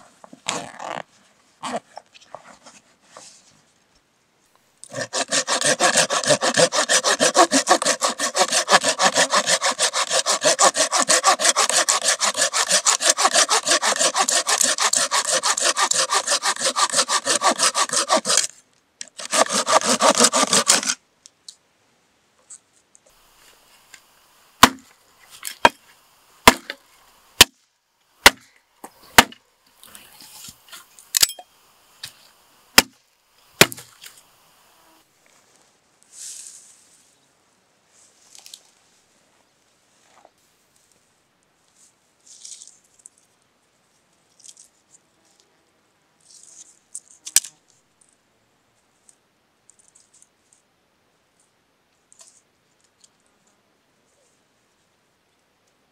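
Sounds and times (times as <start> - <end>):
pruning saw cutting branch: 4.8 - 21.0, 23.2 - 27.5, 29.1 - 34.4
blade chopping dry wood: 4.9 - 20.9, 24.0 - 25.8, 26.4 - 26.8, 27.4 - 27.6, 28.2 - 28.5, 29.1 - 29.4, 32.0 - 33.0, 33.6 - 34.1.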